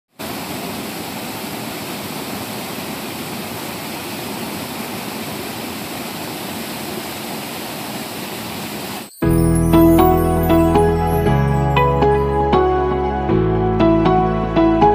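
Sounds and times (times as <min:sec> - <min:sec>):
waterfall rushing over rocks: 0:00.1 - 0:09.1.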